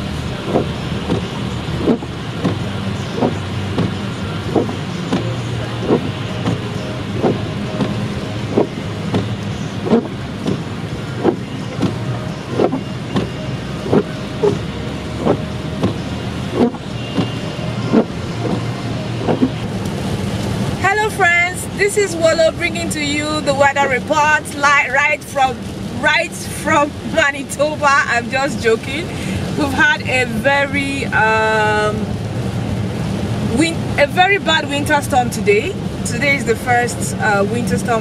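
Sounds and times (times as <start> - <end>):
engine and tyre hum on slushy road: 0.0 - 38.0
windshield wipers thumping: 0.3 - 21.4.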